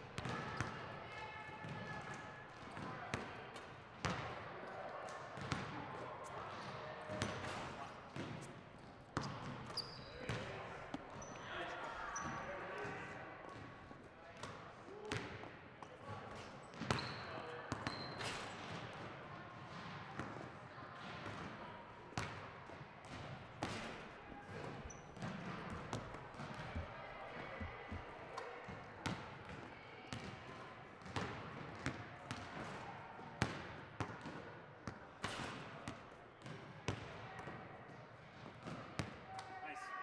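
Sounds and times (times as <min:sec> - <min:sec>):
basketballs bouncing on wooden floor: 0:25.2 - 0:28.1.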